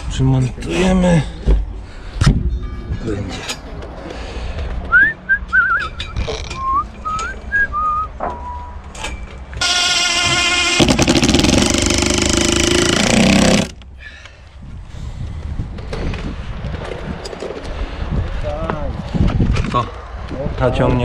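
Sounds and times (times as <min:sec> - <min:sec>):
person whistling a tune: 0:04.9 - 0:08.8
power tool running: 0:09.6 - 0:13.8.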